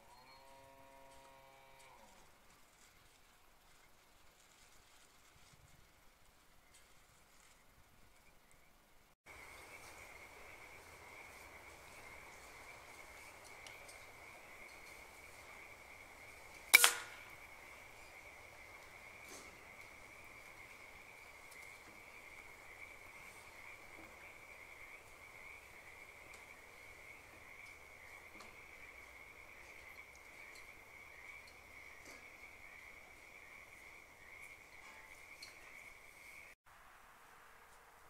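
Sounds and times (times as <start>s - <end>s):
faint ticks: 12.9s - 15.0s.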